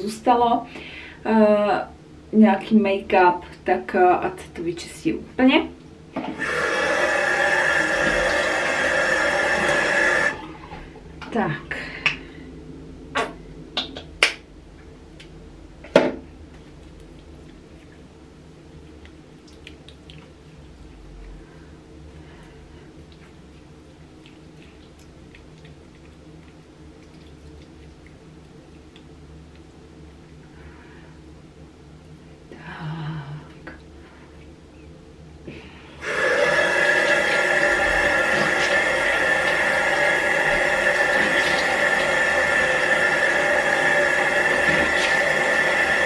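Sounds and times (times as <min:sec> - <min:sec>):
low hum: 0:00.0 - 0:46.0
wet squishes of skin: 0:18.7 - 0:21.5, 0:22.4 - 0:30.4
sticky clicks of skin: 0:18.9 - 0:20.4
faint water splashes: 0:36.4 - 0:46.0.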